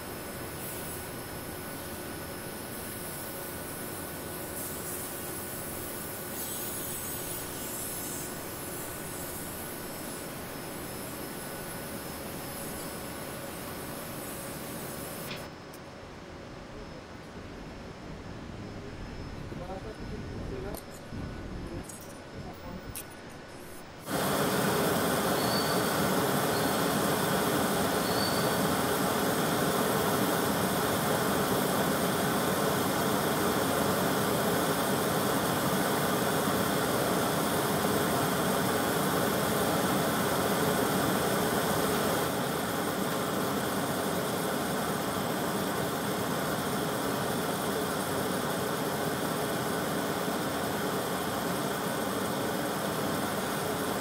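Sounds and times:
gas torches rushing: 24.0 - 54.0.

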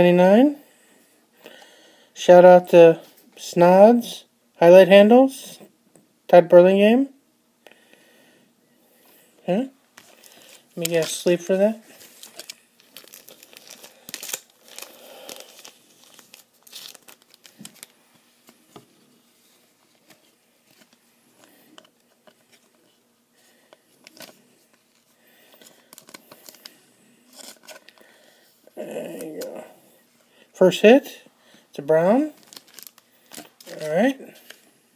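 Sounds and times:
plastic sleeve crinkling: 10.0 - 23.0, 23.9 - 28.1, 32.2 - 34.7.

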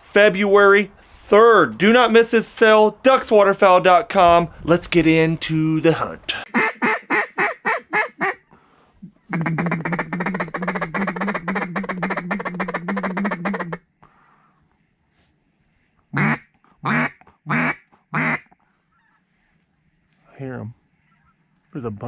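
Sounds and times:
duck quacking: 6.4 - 13.8, 16.1 - 19.2.

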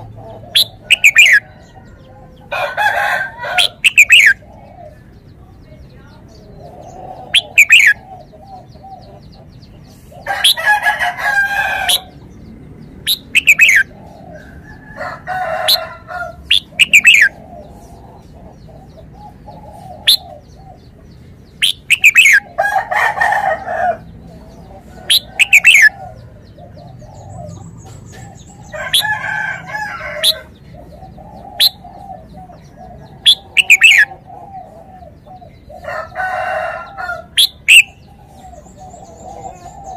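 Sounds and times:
bulbul chirping: 0.0 - 1.4, 3.6 - 4.5, 7.2 - 8.0, 13.0 - 14.0, 16.4 - 17.4, 21.5 - 22.5, 25.0 - 25.9, 33.2 - 34.2, 37.4 - 38.1
rooster crowing: 0.6 - 4.4, 10.3 - 12.2, 13.6 - 17.3, 22.2 - 24.1, 28.6 - 30.6, 35.8 - 37.8.

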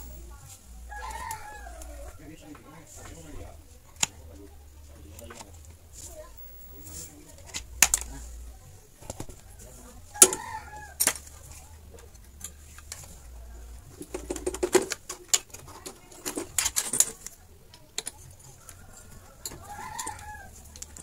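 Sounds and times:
clicks and taps of handled tools: 7.4 - 8.2, 14.0 - 21.0.

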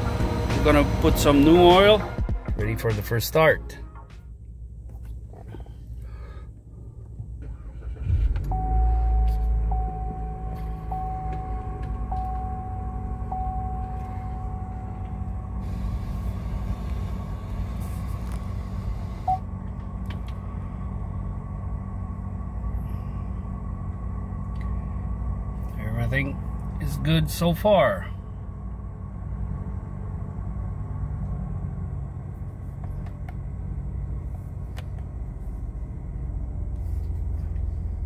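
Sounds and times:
car engine starting and idling: 0.0 - 38.0
car chime dinging: 8.5 - 15.3.

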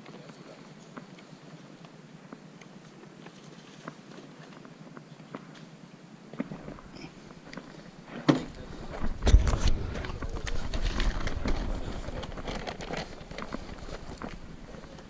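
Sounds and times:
camera rustling and thuds: 6.4 - 15.0.

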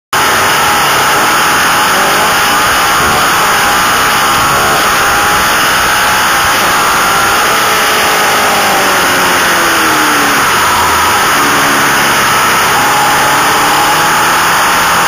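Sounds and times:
motorcycle engine at high revs: 0.1 - 15.0.

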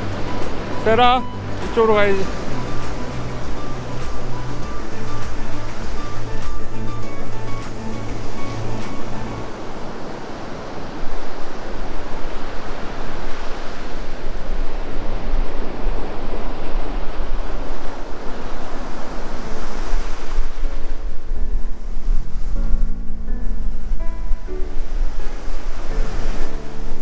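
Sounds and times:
background music: 0.0 - 9.6, 21.4 - 27.0
surf washing on shore: 0.0 - 27.0
wind rumbling on microphone: 0.0 - 27.0.

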